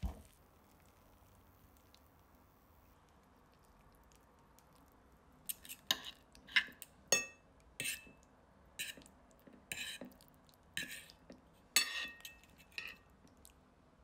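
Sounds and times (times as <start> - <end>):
fork and knife scraping a plate: 5.5 - 6.9, 7.8 - 8.2, 8.8 - 9.1, 9.7 - 10.1, 10.8 - 11.1, 11.8 - 13.0.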